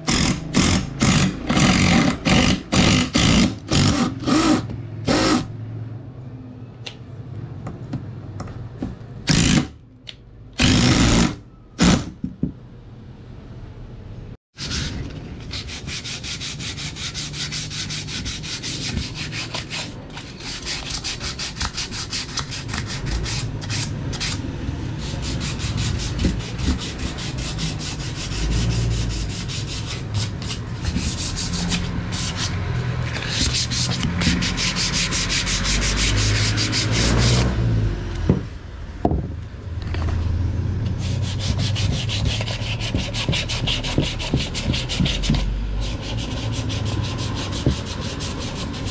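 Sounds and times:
sandpaper scraping wood: 14.6s - 37.4s, 40.9s - 48.9s.

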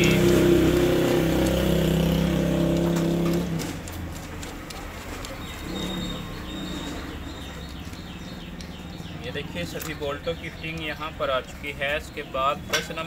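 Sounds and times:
engine humming: 0.0s - 13.0s
bird chirps: 5.3s - 13.0s.

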